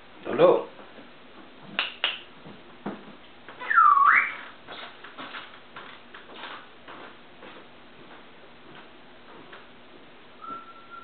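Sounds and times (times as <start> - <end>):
parrot whistling: 3.6 - 4.5, 10.4 - 11.0.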